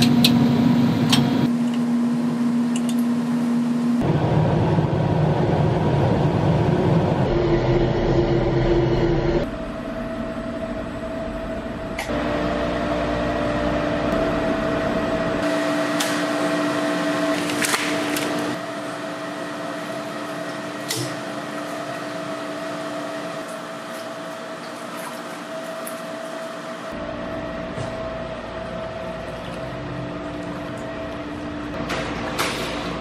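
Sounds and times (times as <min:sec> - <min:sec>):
factory machinery hum: 0:00.0 - 0:33.0.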